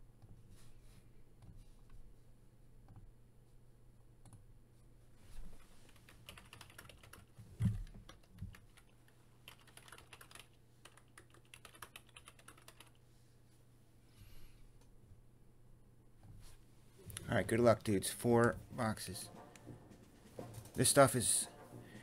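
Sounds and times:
keyboard typing: 0:06.0 - 0:13.0.

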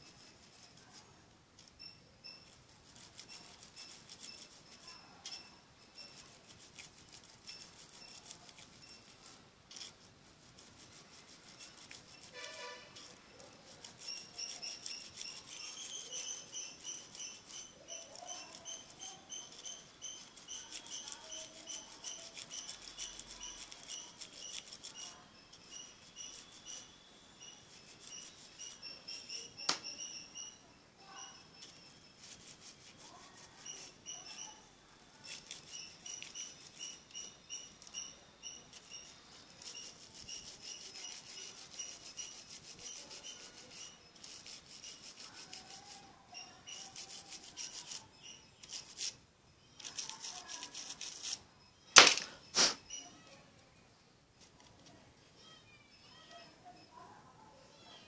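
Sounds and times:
small brush scratching: 0:00.0 - 0:51.6, 0:52.5 - 0:53.5
high chirps: 0:14.0 - 0:32.5.

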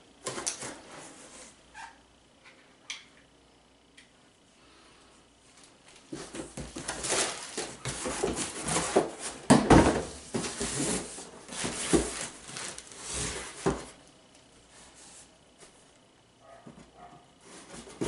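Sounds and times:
cardboard rustling and scraping: 0:06.0 - 0:14.0, 0:16.6 - 0:18.0.

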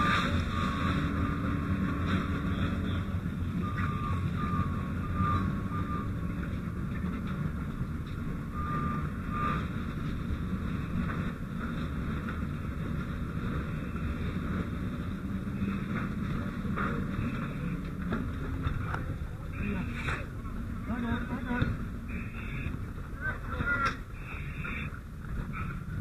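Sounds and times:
high-pitched beeps: 0:02.7 - 0:06.5.

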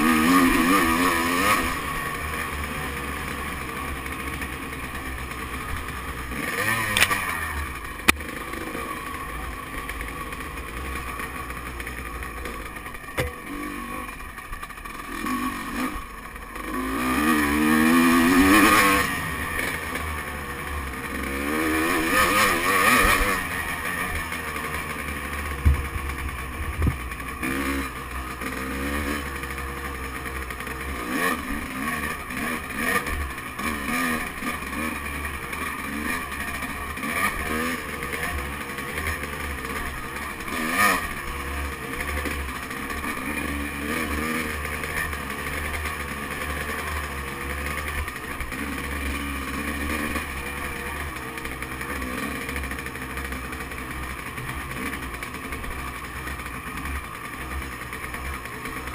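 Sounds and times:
dirt bike engine: 0:00.0 - 0:58.9
sharp knocks from bumpy ride: 0:12.4 - 0:13.7, 0:25.6 - 0:27.2.

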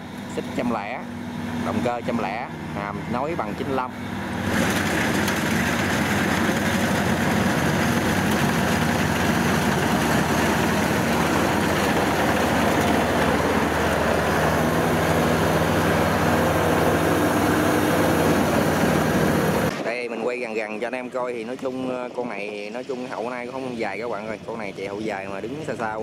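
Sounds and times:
engine drone: 0:00.0 - 0:26.0
clatter of cutter and threshing drum: 0:04.4 - 0:19.9.

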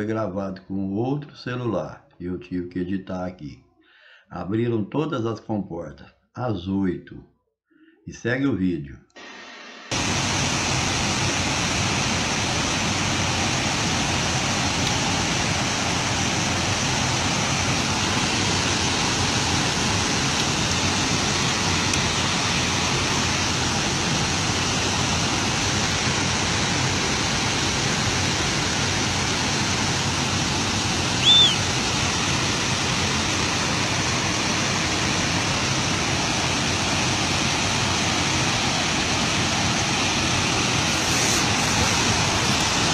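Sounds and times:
water rushing down spillway: 0:09.9 - 0:42.9
short high whistle: 0:31.2 - 0:31.7.

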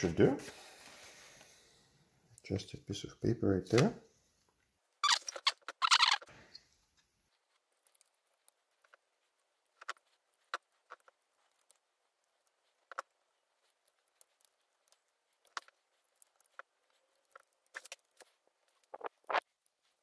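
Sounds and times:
small clicks and taps: 0:07.0 - 0:20.0.

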